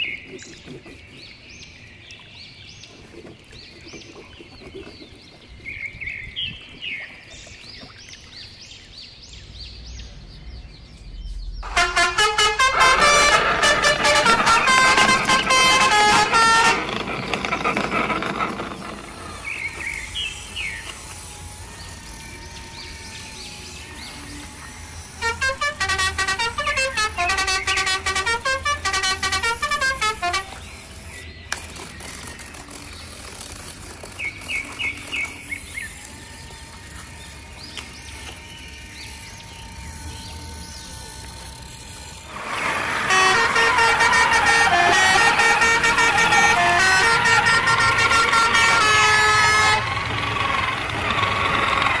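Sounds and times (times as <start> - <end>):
toy truck horn toots: 11.6 - 22.1, 24.0 - 31.2, 41.6 - 52.0.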